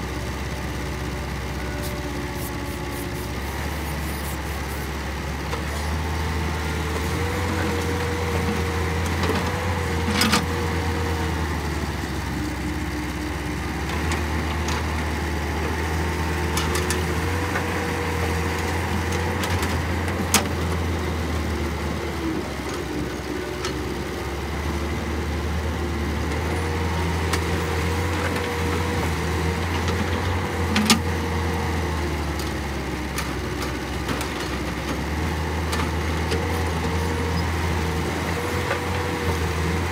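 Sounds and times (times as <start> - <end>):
diesel engine running: 0.0 - 39.9
hydraulic whine: 1.6 - 5.1.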